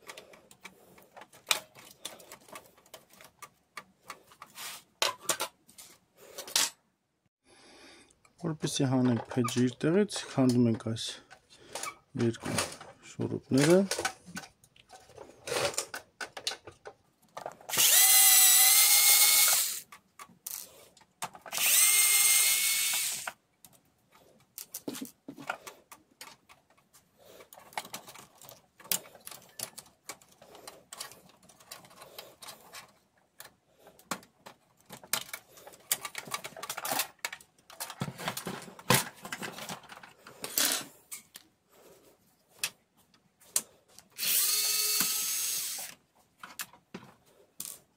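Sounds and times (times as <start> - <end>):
screws and plastic parts clattering: 0.0 - 6.8, 8.7 - 47.9
electric screwdriver whine: 17.7 - 19.8, 21.5 - 23.4, 44.2 - 45.9.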